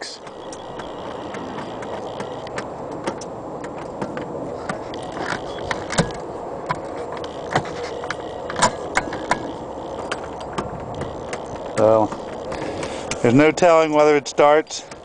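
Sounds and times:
boat starter clicking: 0.1 - 15.0.

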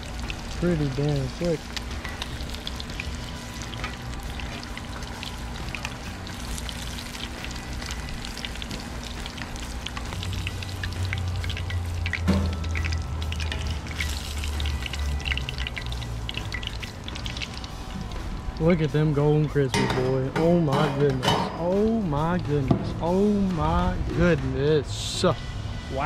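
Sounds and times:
fish deep-frying in oil: 0.0 - 24.1
low rumble: 21.9 - 26.0.

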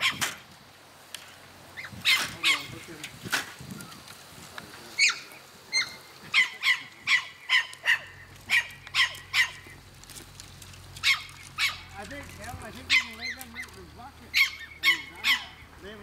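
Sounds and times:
dog barking in sharp yaps: 5.0 - 9.6, 11.0 - 11.9, 12.9 - 13.7.

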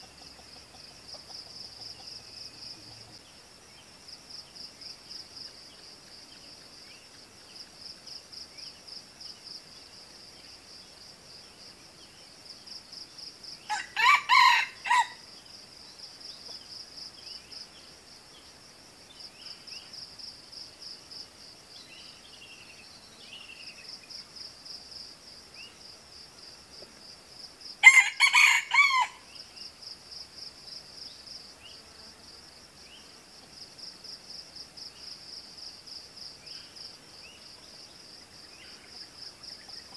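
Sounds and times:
insects trilling: 0.0 - 39.9
junglefowl crowing: 13.7 - 15.2, 27.8 - 29.2.

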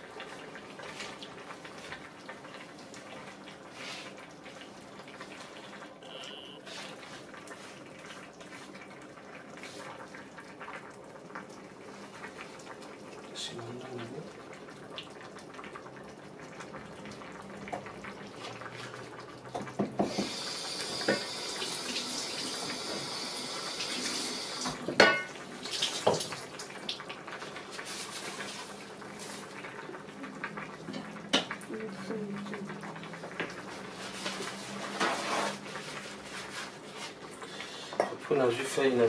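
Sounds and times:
water running from a tap: 16.7 - 29.4
pots and utensils clinking: 24.9 - 25.4, 34.1 - 35.8, 37.9 - 38.3.

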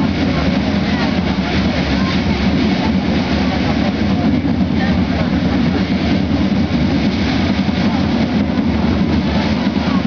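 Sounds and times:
side drums drumming: 0.0 - 10.0.

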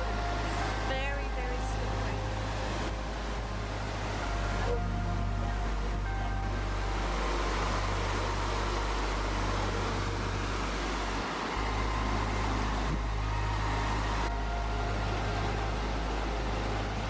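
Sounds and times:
stream flowing over stones: 0.0 - 17.0.

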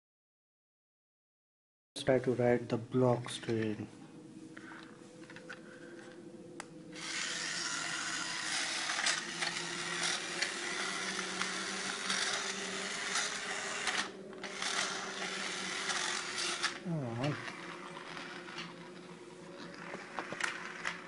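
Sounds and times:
toy train whirring on plastic track: 7.0 - 21.0.

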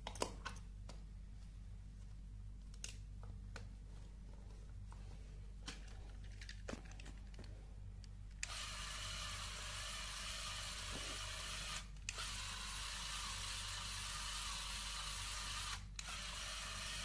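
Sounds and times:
toy motor whirring: 8.4 - 17.0.

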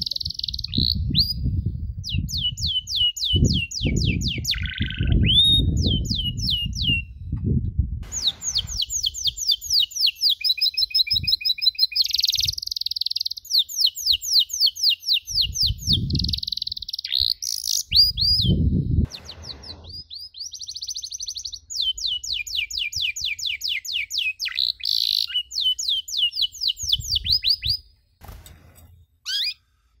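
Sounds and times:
canary singing: 0.0 - 1.4, 2.0 - 7.1, 8.1 - 27.9, 29.2 - 29.6
low rumbling noise: 7.3 - 9.2, 18.6 - 20.0.

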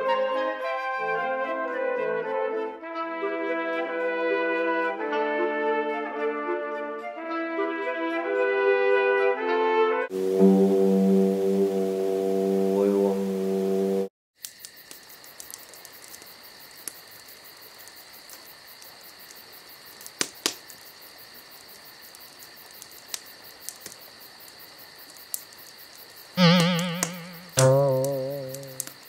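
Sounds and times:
crickets chirping: 10.1 - 29.0
faint clicks: 14.4 - 20.9, 21.6 - 29.0
loud wobbling boing: 26.4 - 28.7.

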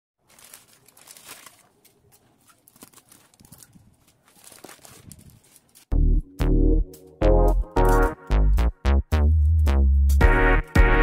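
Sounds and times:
plastic bag rustling and crinkling: 0.2 - 5.9
electronic music synth notes: 6.0 - 11.0.

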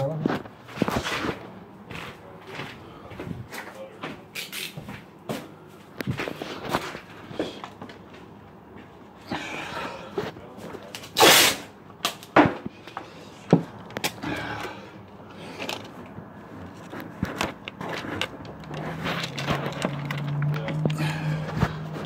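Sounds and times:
short loud rasp: 11.2 - 11.7
phone being handled: 15.5 - 22.0.

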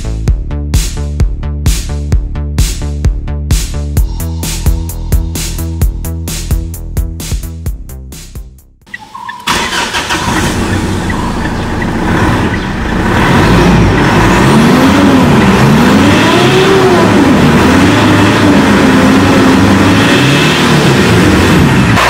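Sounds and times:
diesel engine starting and revving: 8.9 - 22.0.

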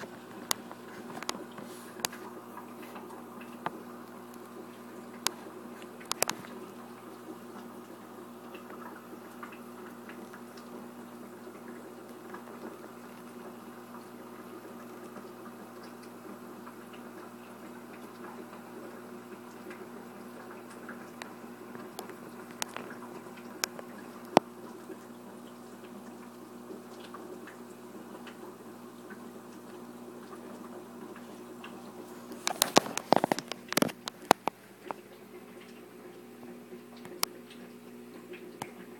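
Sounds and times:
small ticks: 0.0 - 7.7, 14.7 - 25.1, 29.1 - 35.8
aquarium equipment humming: 0.0 - 38.9
faint water bubbling: 0.0 - 38.9
sharp clicks and knocks: 6.0 - 6.5, 32.3 - 35.0.

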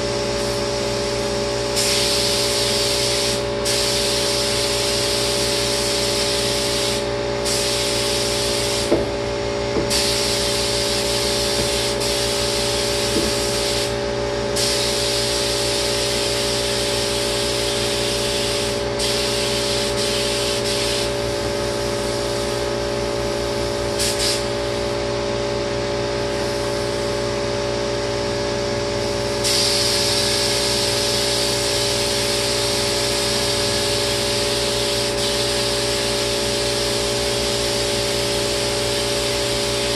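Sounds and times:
spray gun hissing: 1.8 - 9.0, 9.8 - 22.6, 24.0 - 24.8, 29.4 - 39.9.

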